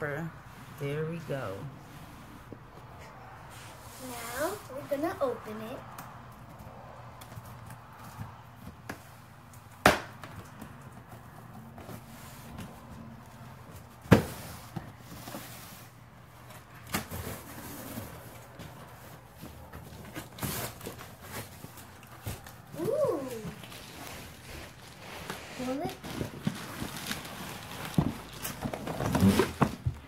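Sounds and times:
cardboard box handling noises: 10.3 - 30.0.

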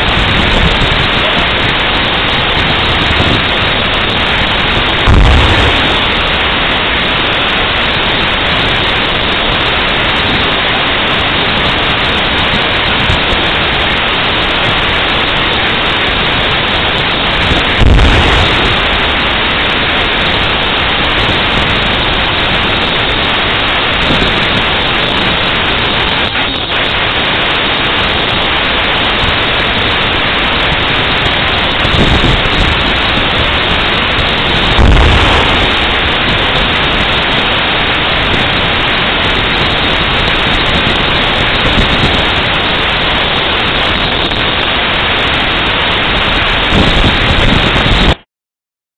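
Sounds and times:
loud rushing noise: 0.0 - 48.2
tank gun boom: 5.0 - 6.1.

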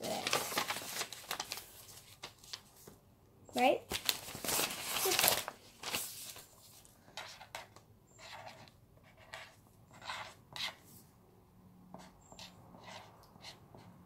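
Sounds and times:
pen scratching on paper: 7.2 - 10.8, 11.9 - 14.0.

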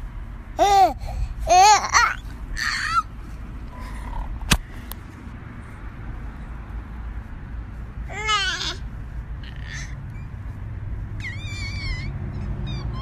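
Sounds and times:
low background rumble: 0.0 - 13.0
sharp click: 4.4 - 5.0
cat meowing: 11.2 - 12.2.

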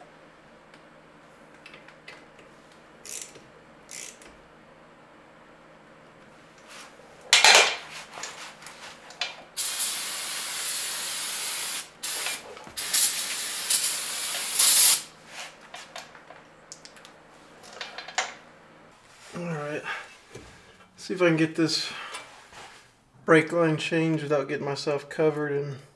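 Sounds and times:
aerosol spray hissing: 9.6 - 15.1.

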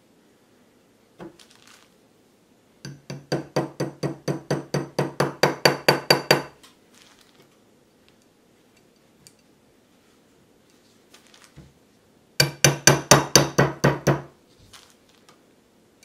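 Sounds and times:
hammer tapping metal pin: 2.9 - 6.5, 12.4 - 14.3.

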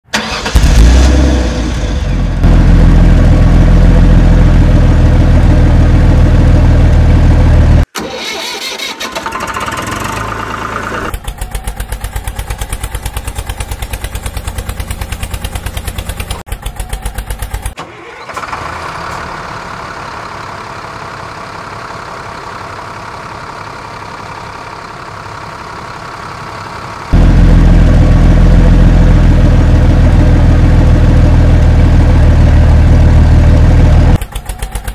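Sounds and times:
heavy diesel engine running: 0.1 - 34.9
fast even engine chugging: 9.3 - 17.8, 33.0 - 34.9
quieter steady engine: 10.0 - 34.9.

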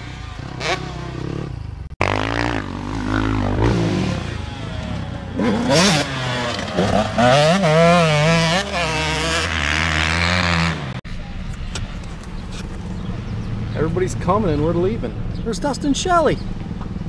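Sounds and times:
dirt bike engine revving: 0.0 - 11.0
low engine hum: 11.1 - 17.0.

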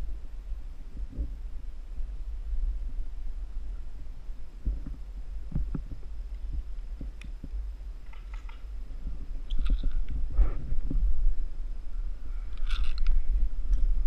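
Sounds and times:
camera handling rumble: 4.7 - 11.0, 12.5 - 14.0.

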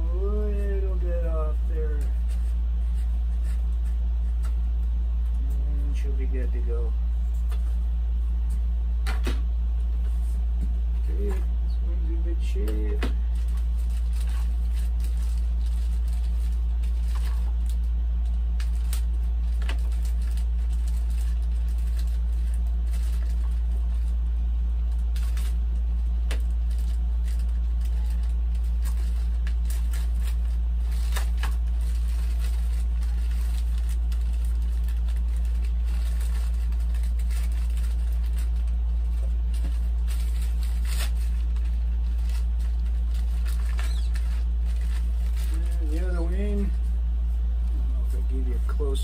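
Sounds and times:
steady low hum: 0.0 - 49.0
plastic bags crinkling: 12.4 - 46.9.

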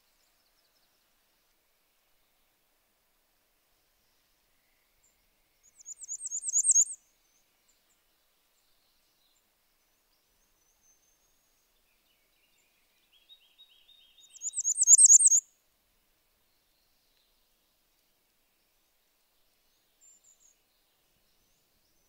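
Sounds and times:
warbler singing high thin songs: 5.7 - 7.0, 12.5 - 15.4.

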